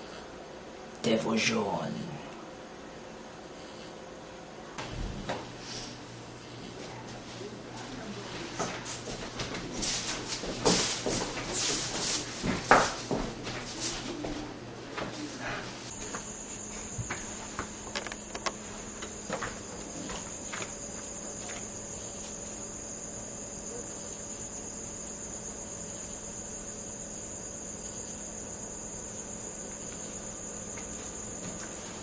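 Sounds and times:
crickets trilling: 15.9 - 32.0.

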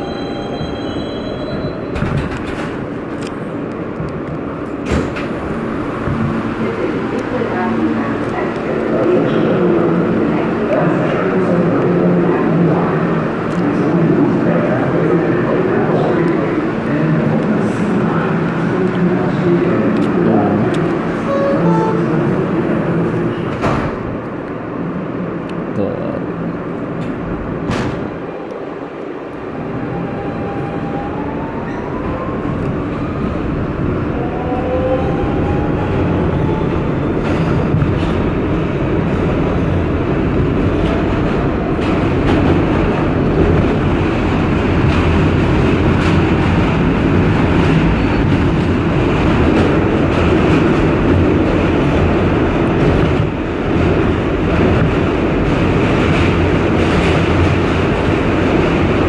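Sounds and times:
train wheels clattering on rails: 1.9 - 6.4, 37.1 - 59.0.

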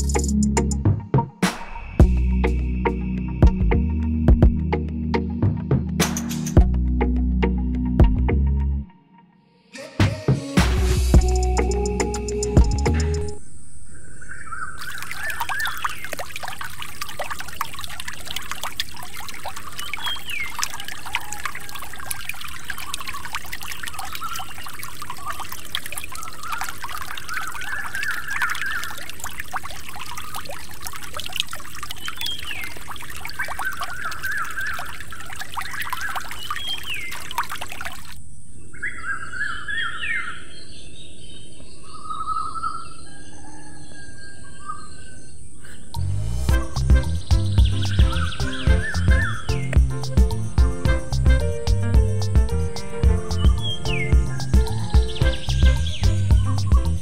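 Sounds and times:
birds chirping: 11.2 - 16.6, 19.4 - 29.2, 31.9 - 46.0, 46.6 - 57.0
water splashing from pump spout: 14.8 - 38.2.

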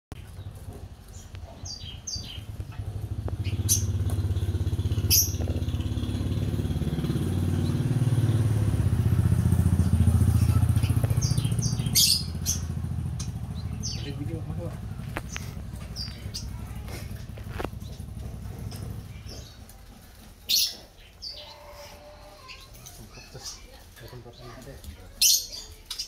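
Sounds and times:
birds chirping: 0.1 - 26.0
motorcycle engine running: 0.2 - 21.1.

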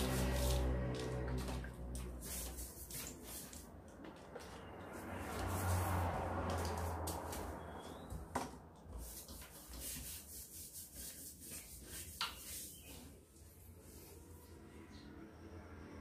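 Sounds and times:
hand rubbing paste on glass: 0.0 - 3.6, 8.9 - 14.1.

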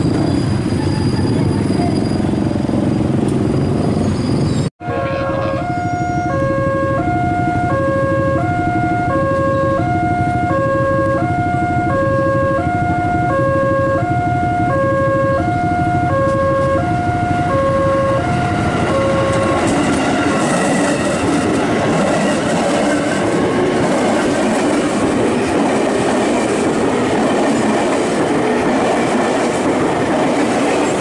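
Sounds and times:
electric train rolling past: 0.0 - 31.0
level crossing alarm ringing: 4.8 - 21.2.

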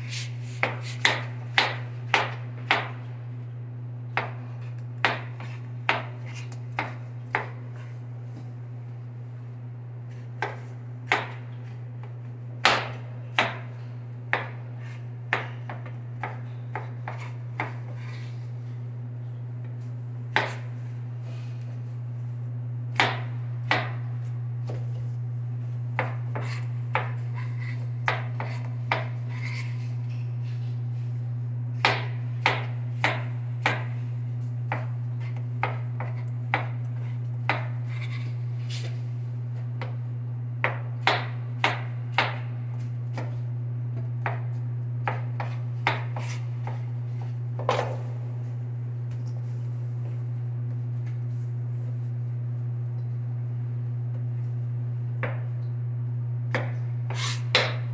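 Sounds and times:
knife chopping on cutting board: 0.6 - 3.0, 5.0 - 7.6, 12.6 - 18.3, 20.3 - 20.7, 22.9 - 24.0, 26.0 - 29.8, 31.8 - 34.0, 34.7 - 38.3, 40.6 - 42.5, 44.2 - 48.0, 56.5 - 57.9.

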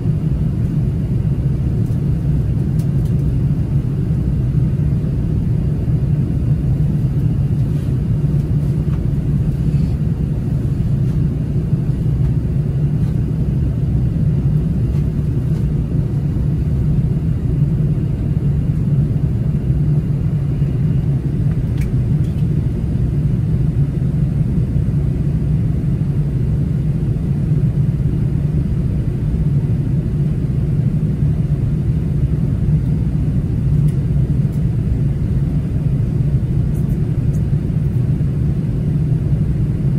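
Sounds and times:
airflow noise: 0.0 - 23.5
jet engines droning in cabin: 0.0 - 39.9.

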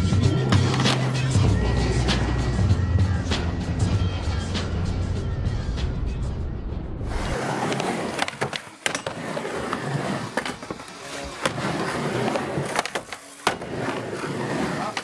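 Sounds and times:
background music: 0.0 - 8.4
skateboard wheels rolling on ramp: 7.0 - 15.0
skateboard clacking on ramp: 7.7 - 9.2, 12.4 - 13.7.

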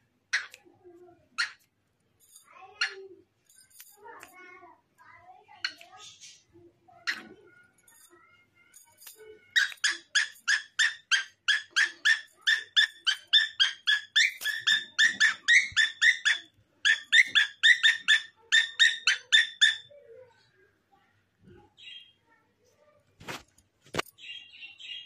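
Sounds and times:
cockatiel chirping: 9.6 - 19.9.

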